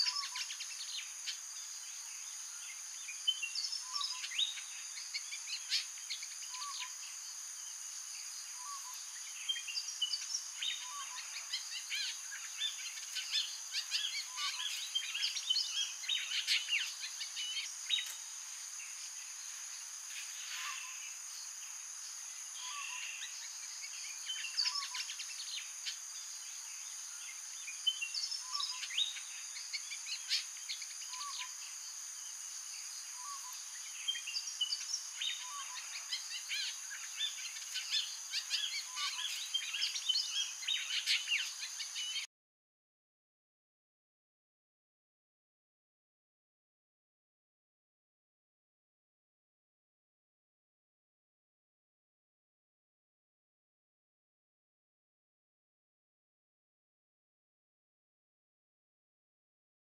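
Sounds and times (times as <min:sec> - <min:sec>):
birds chirping and calling: 0:00.0 - 0:07.1, 0:08.5 - 0:21.2, 0:22.4 - 0:31.7, 0:33.1 - 0:42.3
high-pitched insect drone: 0:16.8 - 0:27.6.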